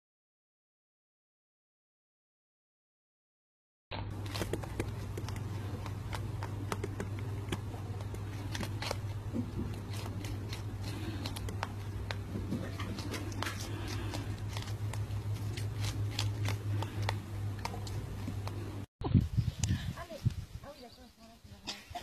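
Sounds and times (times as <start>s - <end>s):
rabbit chewing: 4.0s - 18.9s
steady low hum: 4.0s - 22.0s.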